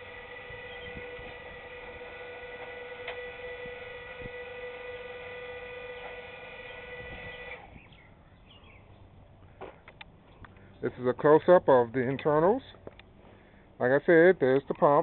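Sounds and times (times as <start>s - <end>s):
electric hydraulic pump whining: 0.0s - 7.9s.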